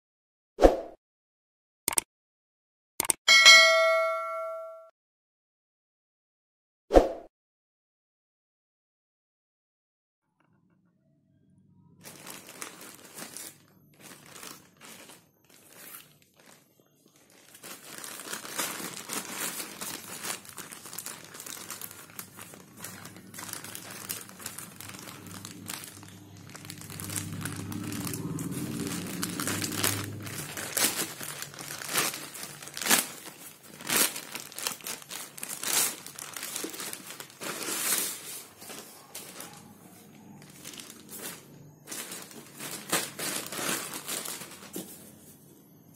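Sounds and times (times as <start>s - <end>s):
plastic bag crinkling and ripping: 12.0s - 45.2s.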